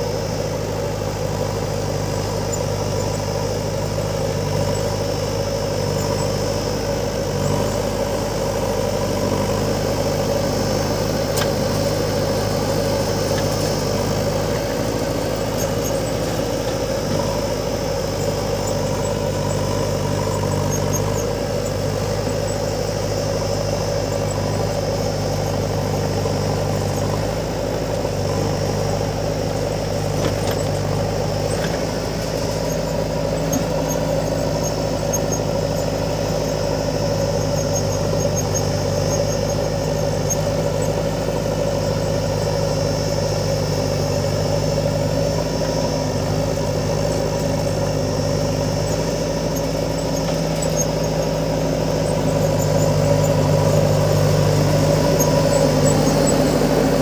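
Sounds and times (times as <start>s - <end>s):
diesel engines running: 0.0s - 57.0s
faint high squeaks: 45.6s - 57.0s.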